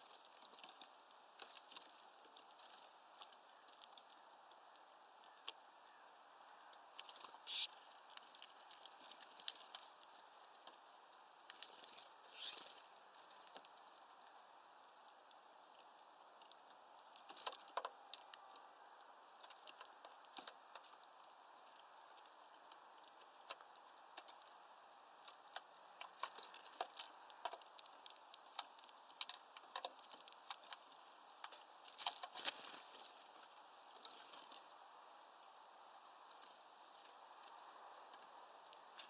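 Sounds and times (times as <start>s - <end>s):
birds pecking seeds: 0.0s - 39.0s.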